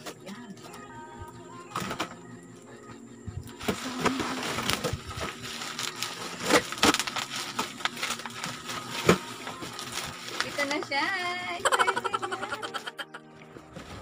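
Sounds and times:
cardboard flaps scraping: 3.5s - 10.8s, 13.6s - 14.0s.

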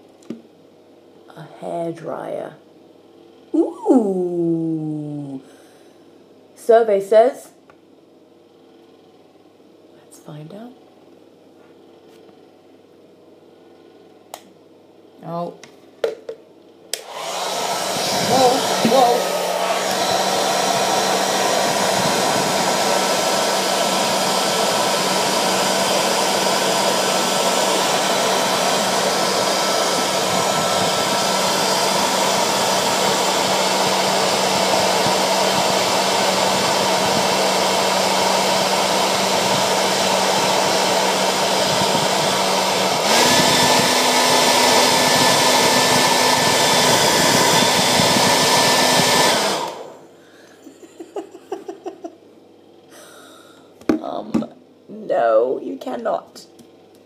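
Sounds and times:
hair dryer blowing: 16.9s - 52.1s.

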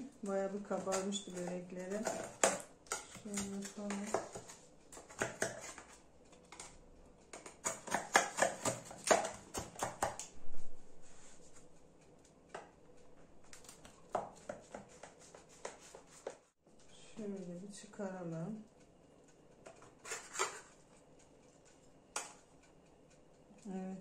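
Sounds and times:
knife cutting crackly pastry: 0.7s - 6.8s, 7.4s - 10.3s, 19.8s - 20.8s.

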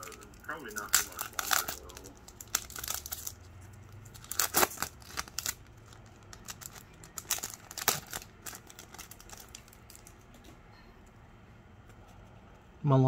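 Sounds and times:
foil pack tearing and crinkling: 0.0s - 3.4s, 4.1s - 10.1s.

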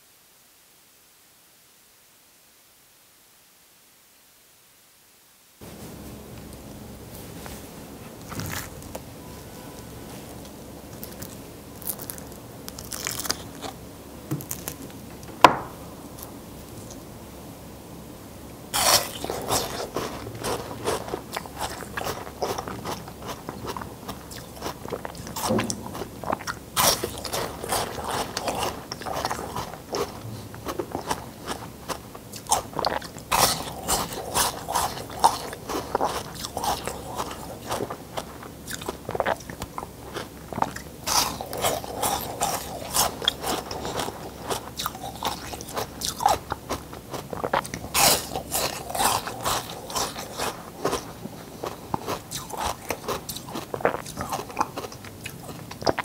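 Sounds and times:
ice crunching between teeth: 11.0s - 13.8s, 18.8s - 56.0s.

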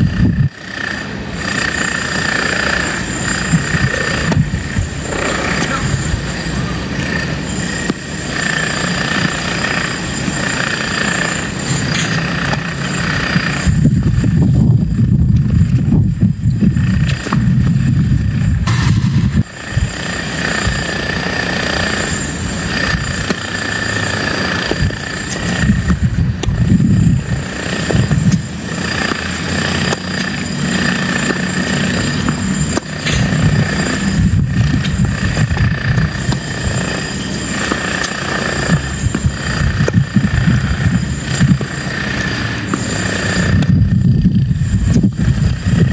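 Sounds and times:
wind buffeting microphone: 0.0s - 9.8s, 10.4s - 45.9s
steady high-pitched whine: 0.0s - 45.9s.

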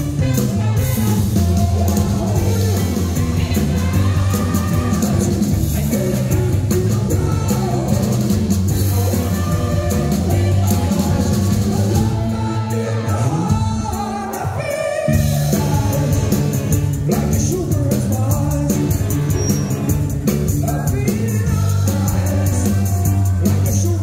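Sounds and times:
saxophones playing: 0.0s - 8.1s
drums: 0.0s - 24.0s
electric guitars: 0.0s - 24.0s
sliding bass line: 0.0s - 24.0s.

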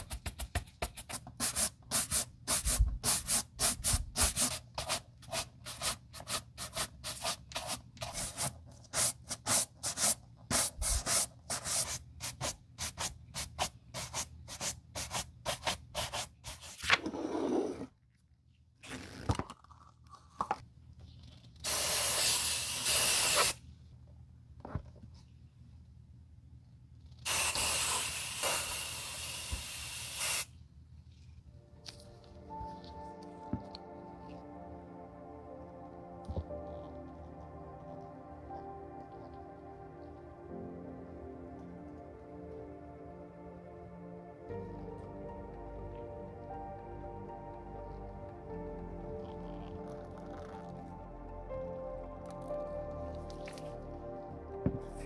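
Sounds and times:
shoe brush buffing leather: 0.0s - 16.6s
aerosol spray can hissing: 1.4s - 16.1s, 21.6s - 23.6s, 27.3s - 30.5s.

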